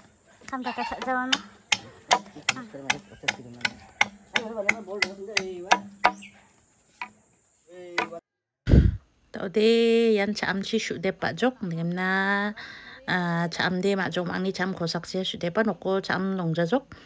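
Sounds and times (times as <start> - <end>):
machete chopping bamboo: 1.0 - 6.3, 8.0 - 8.2.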